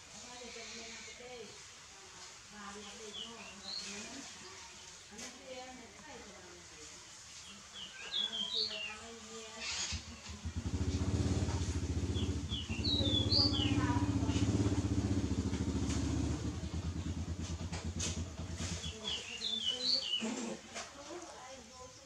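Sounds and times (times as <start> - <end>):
engine running: 9.9 - 19.1
bird chirping: 11.8 - 15.2, 18.5 - 20.3.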